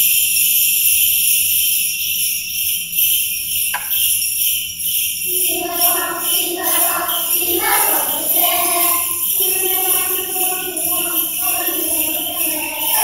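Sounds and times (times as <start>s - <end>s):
jingle bells shaken: 0.0s - 13.0s
children's choir singing: 5.2s - 13.0s.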